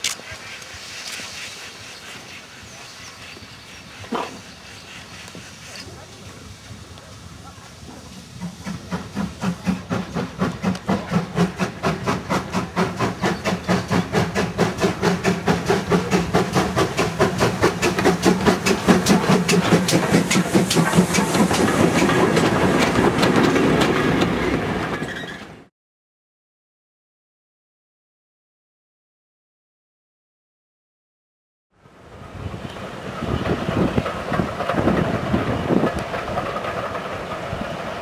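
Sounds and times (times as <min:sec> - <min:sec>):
steam hissing: 0:00.0 - 0:23.8
steam locomotive exhaust beats: 0:00.2 - 0:25.3.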